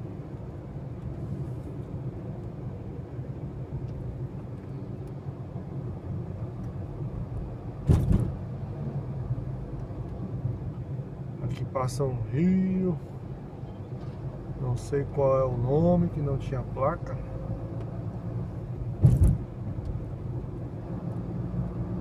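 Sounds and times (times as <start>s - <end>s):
tyres thumping over road bump: 7.8s - 8.4s, 19.0s - 19.5s.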